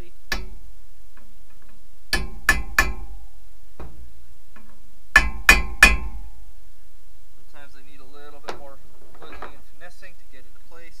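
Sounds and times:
hammer blows on steel: 2.1 - 3.3, 5.1 - 6.4.

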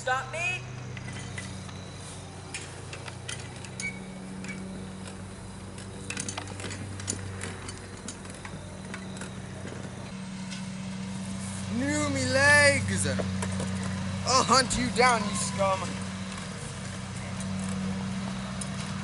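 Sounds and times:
steady low hum: 0.0 - 19.0
go-kart frame and chain rattling: 0.7 - 19.0.

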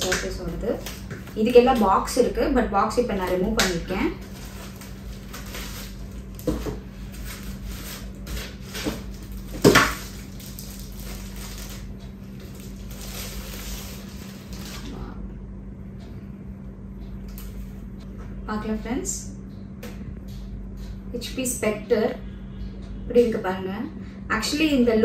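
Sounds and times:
plastic sleeve rustling: 4.1 - 15.0.

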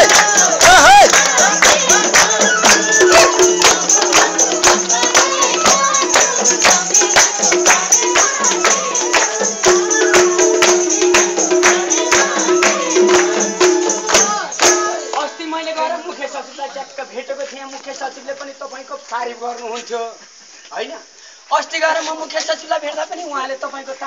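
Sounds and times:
hand percussion with jingles: 0.0 - 15.2
held melody line: 0.0 - 15.2.

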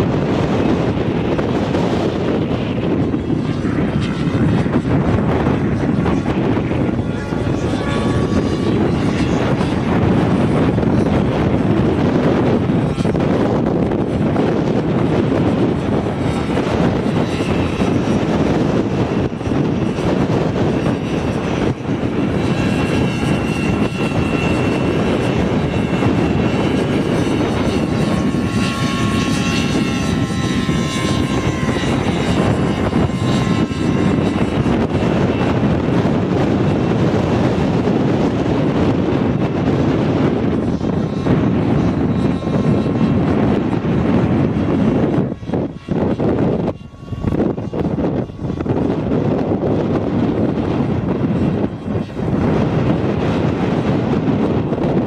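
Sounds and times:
model helicopter motor and rotor: 0.0 - 55.0.

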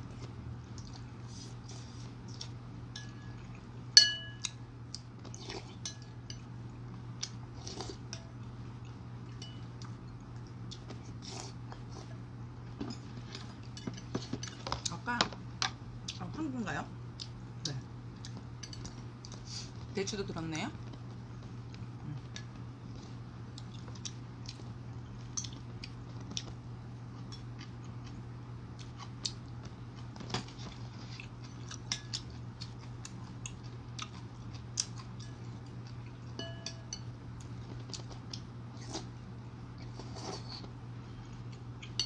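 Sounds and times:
steady low hum: 0.0 - 42.0
chewing: 0.1 - 2.6, 8.8 - 12.2, 18.2 - 19.9, 20.8 - 28.2, 28.8 - 36.4, 37.4 - 39.1.

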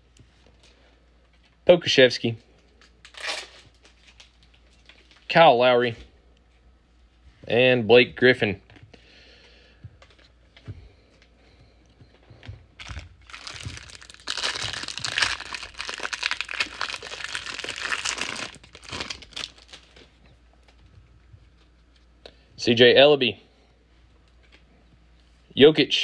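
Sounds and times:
foil wrapper tearing and crinkling: 3.0 - 5.3, 12.8 - 20.1.

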